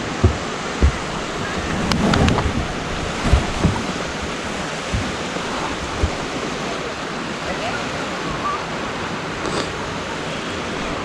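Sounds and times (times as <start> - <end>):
low thumps: 0.0 - 6.6
wind buffeting microphone: 0.0 - 8.4
surf washing onto beach: 0.0 - 11.0.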